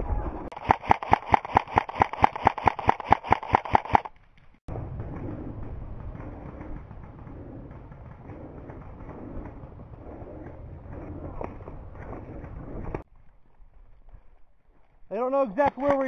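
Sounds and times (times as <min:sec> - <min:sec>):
airsoft rifle rapid firing: 0:00.5 - 0:04.1.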